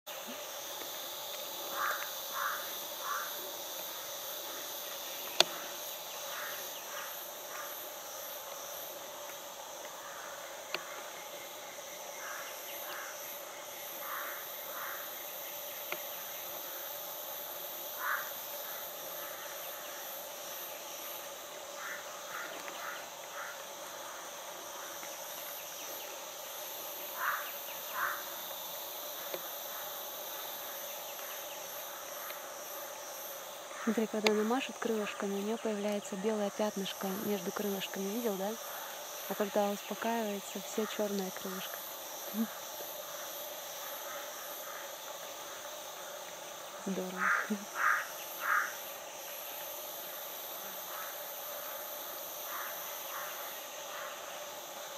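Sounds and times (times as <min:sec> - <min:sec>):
insects buzzing: 0:00.0 - 0:54.9
short insect chirps: 0:00.1 - 0:54.9.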